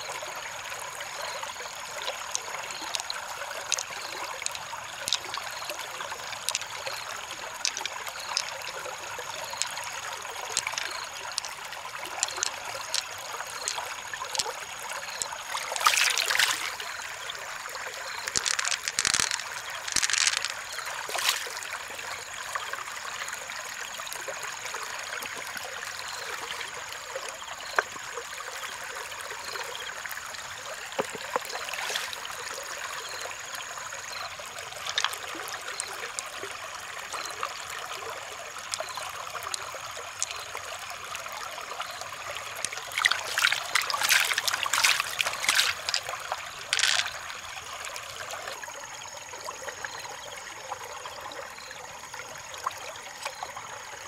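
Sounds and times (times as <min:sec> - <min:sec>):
stream water trickling: 0:00.0 - 0:54.0
shells clicking and tapping: 0:02.3 - 0:08.8, 0:09.4 - 0:14.5, 0:18.2 - 0:21.4, 0:34.9 - 0:35.2, 0:42.6 - 0:47.2.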